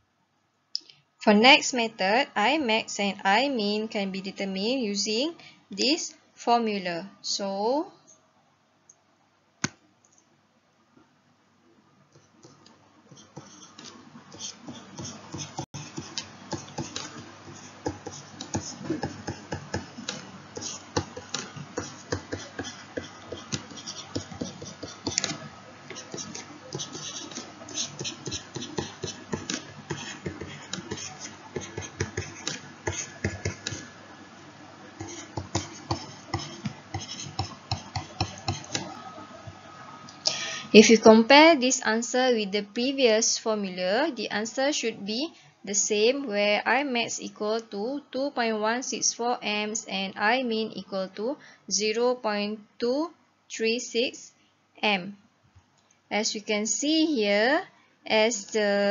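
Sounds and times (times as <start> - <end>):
stylus tapping on tablet screen: 12.5 - 33.9, 35.0 - 38.9.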